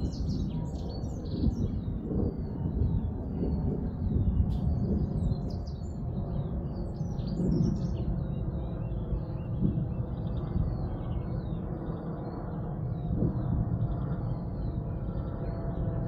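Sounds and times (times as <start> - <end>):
small birds chirping and singing: 0.0 - 16.0
steady low rumble: 0.0 - 16.0.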